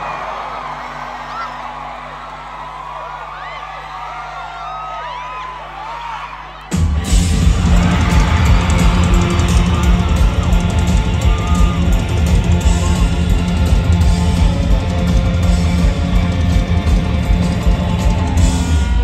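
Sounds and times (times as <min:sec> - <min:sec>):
drums: 0:03.2 - 0:19.0
bass guitar: 0:06.7 - 0:19.0
distorted electric guitars: 0:06.7 - 0:19.0.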